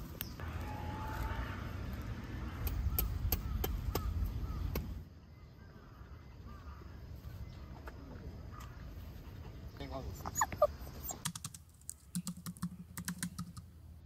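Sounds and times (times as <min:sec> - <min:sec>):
sharp clicks: 0:11.1 - 0:13.7.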